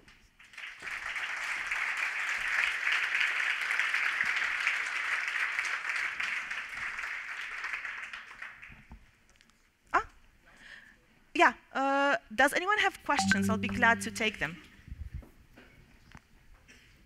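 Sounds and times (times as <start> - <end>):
audience applauding: 0.4 - 8.7.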